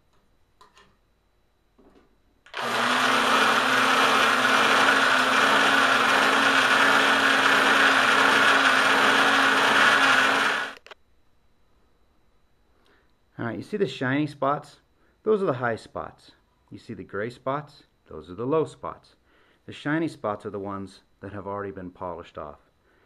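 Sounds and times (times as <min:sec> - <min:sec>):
electric drill honing metal bore: 0:02.5 - 0:10.9.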